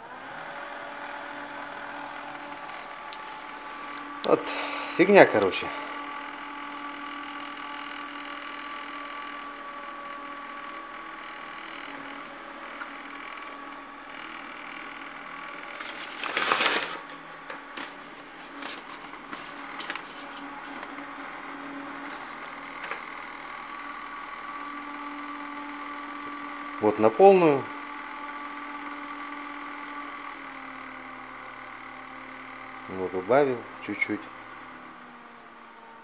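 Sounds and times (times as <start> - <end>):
exhaust fan motor humming: 0.0 - 36.0
loud rustle: 15.8 - 17.2.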